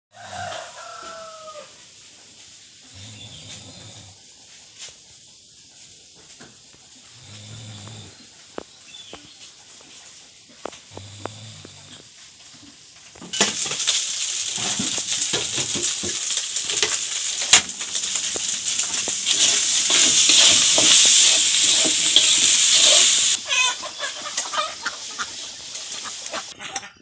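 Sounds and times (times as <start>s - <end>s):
food sizzling and crackling: 0.2s - 26.6s
chicken clucking: 18.3s - 27.0s.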